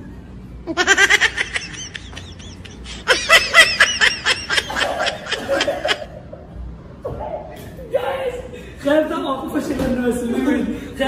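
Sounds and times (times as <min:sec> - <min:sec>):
woman laughing: 0:00.7 - 0:06.2.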